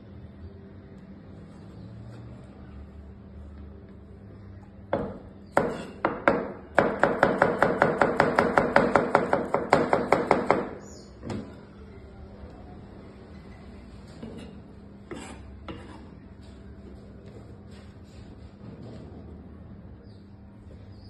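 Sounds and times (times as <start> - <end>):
knife chopping on cutting board: 5.0 - 10.7.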